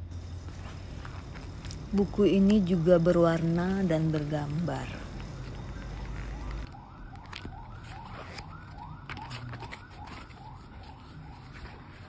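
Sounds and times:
book pages flipping: 3.7s - 12.0s.

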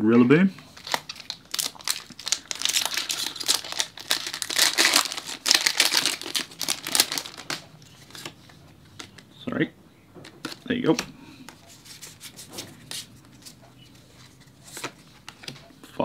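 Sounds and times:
foil wrapper crinkling and tearing: 0.7s - 7.6s.

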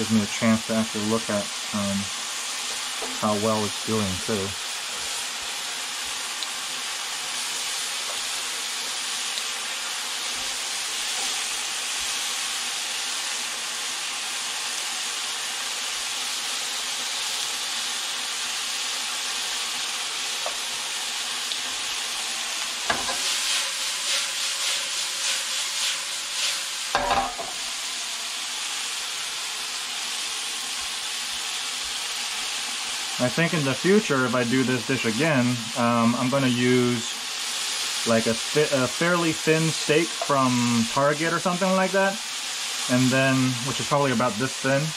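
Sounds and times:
meat sizzling in a frying pan: 0.0s - 44.9s
utensil stirring meat: 0.3s - 13.6s, 19.3s - 27.8s.

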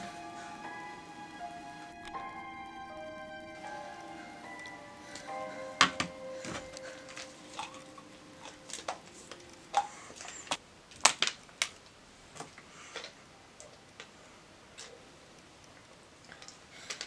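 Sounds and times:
held music chord: 0.0s - 10.5s.

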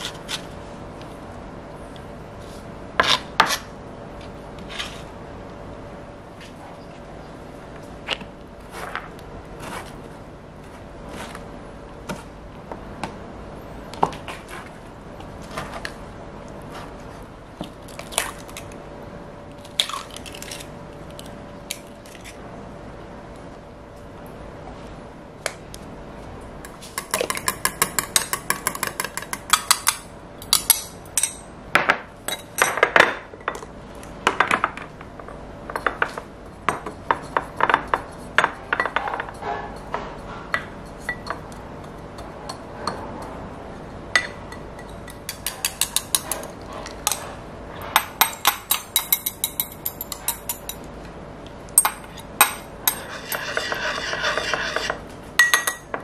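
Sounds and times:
utensils and glassware clinking: 51.8s - 55.9s
chopsticks beating eggs in glass bowl: 52.9s - 55.0s.

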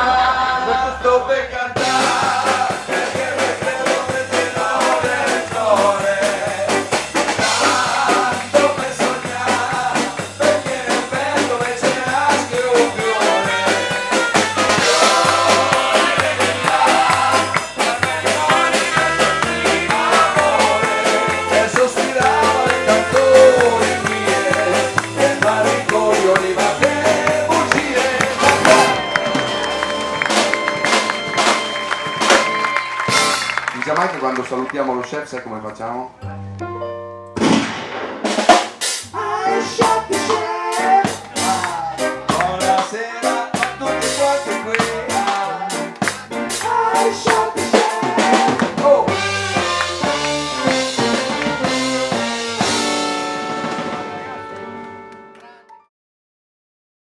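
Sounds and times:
man singing: 0.0s - 29.4s, 39.1s - 49.3s
bass line: 0.0s - 34.4s, 36.1s - 55.1s
swing band playing: 0.0s - 55.6s
drum kit beat: 1.8s - 34.2s, 37.4s - 54.8s
trumpet: 1.8s - 34.5s, 37.6s - 55.7s
saxophone: 12.7s - 33.8s, 44.6s - 55.7s.

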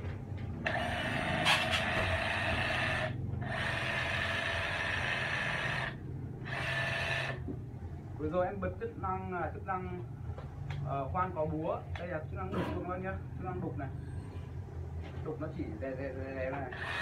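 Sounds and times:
rotary hammer drill whine: 0.6s - 7.5s, 16.6s - 17.0s.

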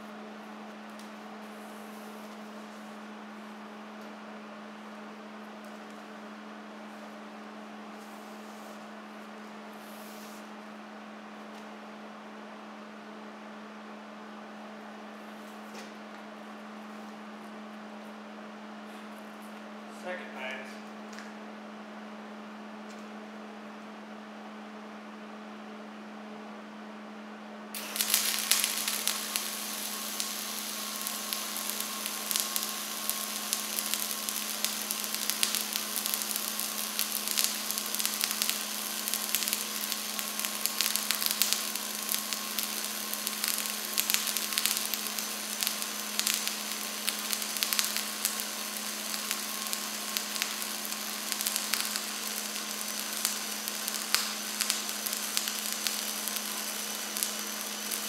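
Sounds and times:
welding arc crackling: 27.8s - 58.0s.

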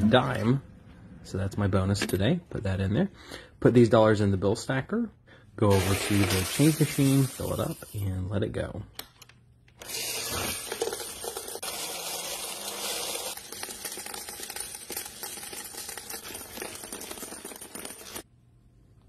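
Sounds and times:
coin counting machine running: 9.8s - 18.2s.

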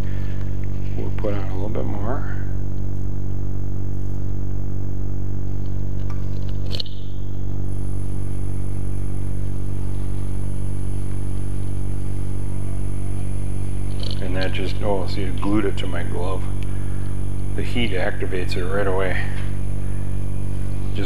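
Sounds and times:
sharp click: 6.0s - 7.2s, 13.9s - 14.6s.

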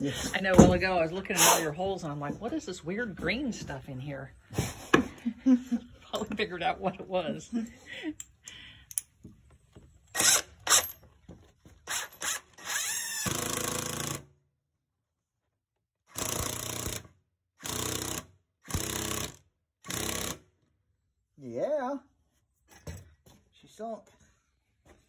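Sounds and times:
power drill driving a screw: 10.1s - 11.0s, 11.8s - 14.2s, 16.1s - 20.4s.

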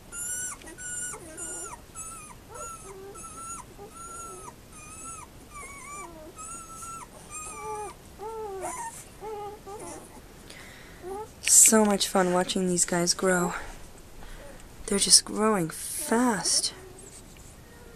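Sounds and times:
puppies squeaking and whimpering: 0.0s - 10.4s, 11.0s - 11.4s.

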